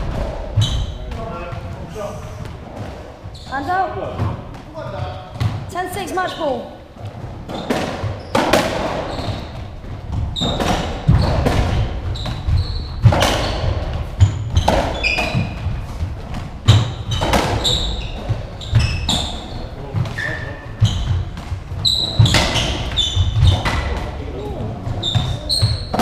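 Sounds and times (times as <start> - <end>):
squash ball hits echoing: 0.0 - 1.8, 2.4 - 5.9, 7.0 - 26.0
shoe squeaks on wooden floor: 0.5 - 2.0, 3.0 - 4.2, 6.2 - 16.0, 16.7 - 26.0.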